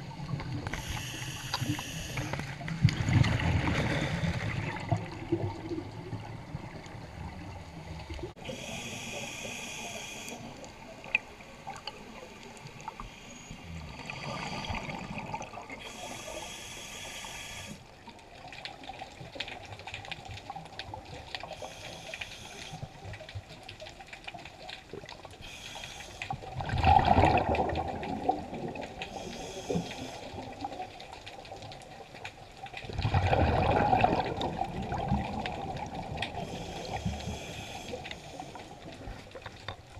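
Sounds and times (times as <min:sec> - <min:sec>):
watery underwater background: 0:00.0 - 0:39.9
scuba diver breathing: 0:00.7 - 0:02.6, 0:03.6 - 0:05.0, 0:08.4 - 0:10.9, 0:15.7 - 0:17.9, 0:21.4 - 0:23.0, 0:25.4 - 0:26.5, 0:29.0 - 0:30.7, 0:36.3 - 0:39.3
exhaled bubbles bursting: 0:26.5 - 0:29.0, 0:32.8 - 0:36.5.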